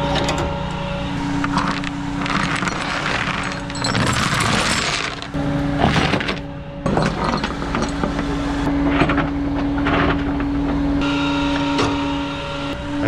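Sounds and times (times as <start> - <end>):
tow truck humming: 0.0 - 13.0
chain clanking and rattling: 1.4 - 8.7.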